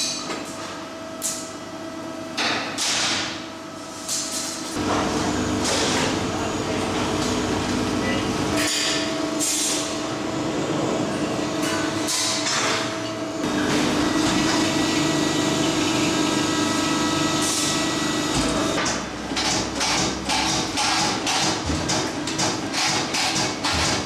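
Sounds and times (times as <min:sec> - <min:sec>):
machine hum: 0:04.7 - 0:20.4.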